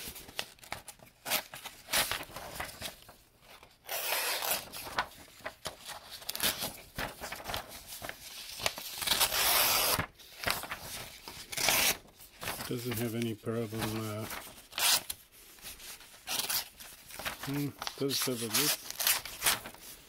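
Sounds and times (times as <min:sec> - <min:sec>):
paper rustling: 0:00.0 - 0:20.0
knife slicing paper: 0:06.2 - 0:12.6.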